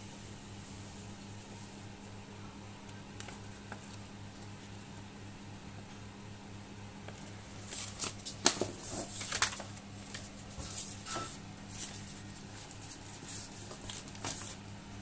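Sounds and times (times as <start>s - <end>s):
steady low hum: 0.0s - 15.0s
paper rustling: 7.6s - 14.7s.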